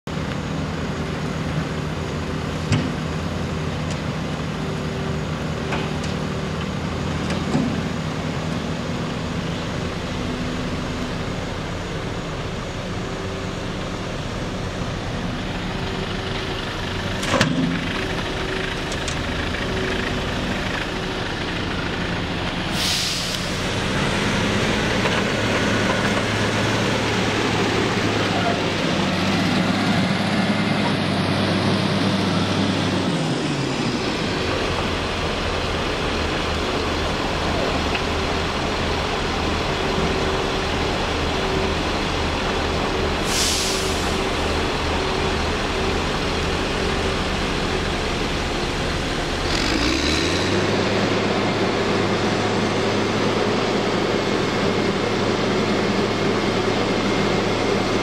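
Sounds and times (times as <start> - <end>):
roller engine: 0.0 - 58.0
diesel engine running: 0.1 - 58.0
short hiss: 22.7 - 23.7, 43.2 - 44.2.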